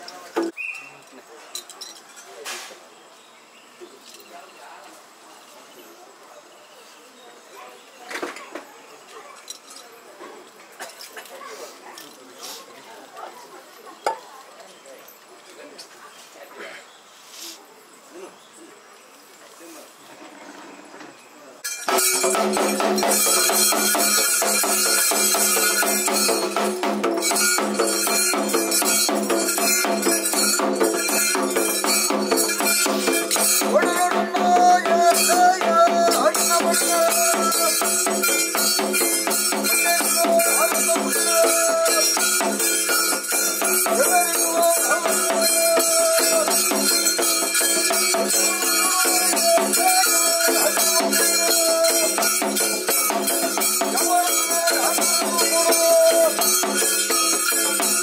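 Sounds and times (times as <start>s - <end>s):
jingling rattles: 1.5s - 2.4s, 9.2s - 10.0s, 21.6s - 58.0s
hand drums fast rhythm: 21.8s - 58.0s
pitched melody line: 21.9s - 58.0s.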